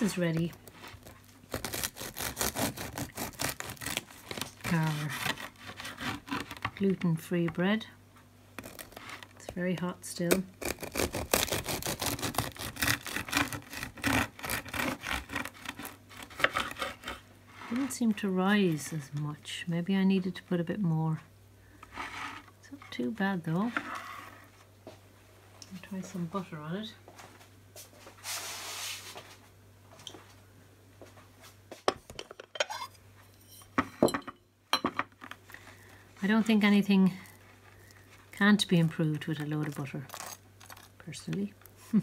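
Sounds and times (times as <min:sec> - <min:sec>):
knife sawing through bread: 0:01.0 - 0:06.7, 0:10.6 - 0:17.9.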